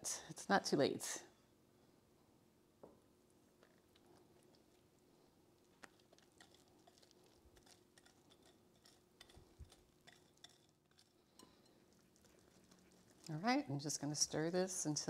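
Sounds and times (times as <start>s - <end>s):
whisk tapping glass bowl: 8.0s - 11.8s.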